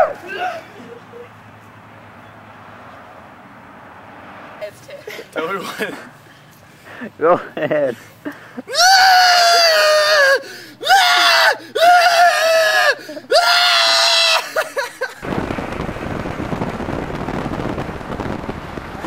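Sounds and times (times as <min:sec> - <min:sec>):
man screaming: 0:00.0 - 0:00.7, 0:08.7 - 0:14.7
wind on microphone: 0:15.2 - 0:19.0.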